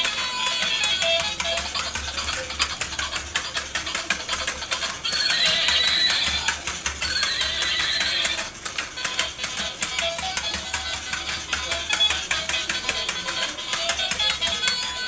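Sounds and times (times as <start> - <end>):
plastic mechanism clicking: 0.0 - 15.0
electronic horse whinny: 5.1 - 8.5.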